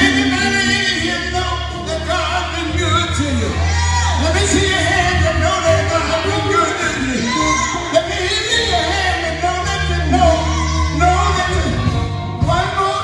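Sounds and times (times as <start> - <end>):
people singing: 0.0 - 1.7
held bass note: 0.0 - 12.9
live band playing: 0.0 - 13.0.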